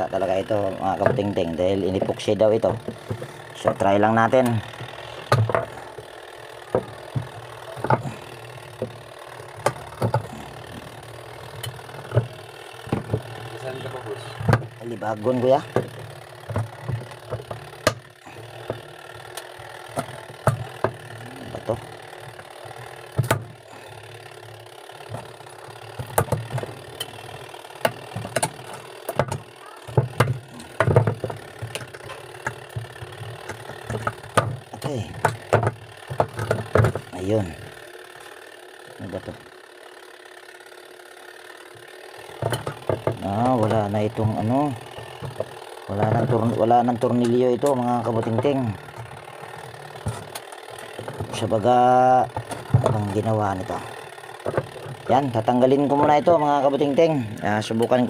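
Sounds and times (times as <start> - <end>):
steady low hum: 0.0 - 58.0
pliers clicking and scraping plastic: 27.8 - 37.1.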